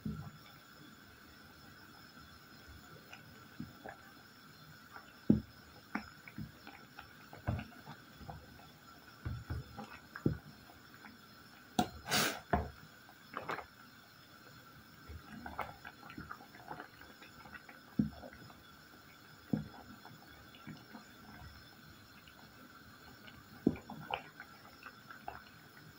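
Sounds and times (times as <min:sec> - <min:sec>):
water boiling: 0:00.0 - 0:25.9
wooden spoon knocking on pot: 0:05.3 - 0:05.5, 0:09.2 - 0:10.4.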